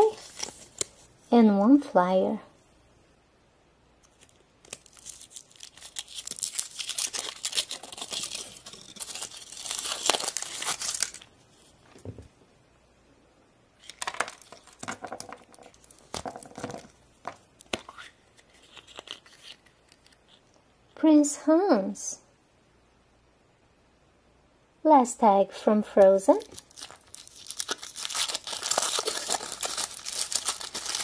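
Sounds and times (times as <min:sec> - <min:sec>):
foil wrapper crinkling and tearing: 0:04.0 - 0:11.3, 0:15.7 - 0:16.3, 0:18.4 - 0:20.4, 0:26.4 - 0:31.0.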